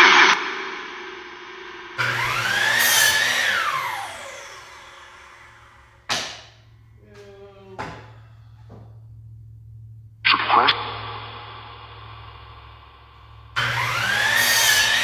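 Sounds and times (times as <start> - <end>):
power tool motor whine: 2.0 - 6.1, 13.5 - 15.0
sharp knock: 6.1 - 6.6.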